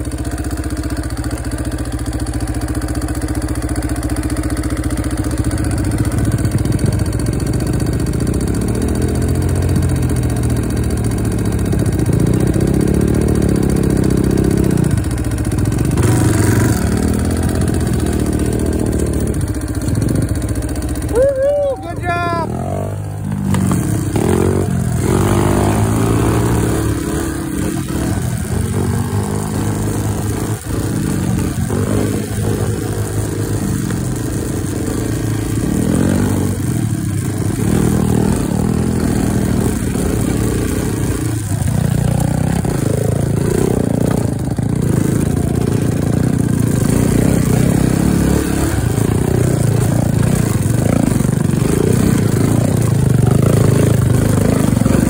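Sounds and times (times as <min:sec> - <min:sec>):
off-road motorcycle engine revving: 0:00.0 - 0:55.0.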